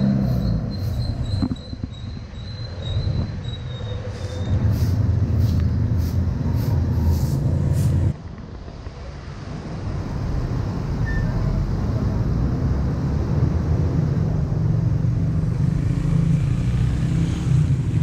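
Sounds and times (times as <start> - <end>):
broom sweeping leaves on concrete: 4.1 - 8.1.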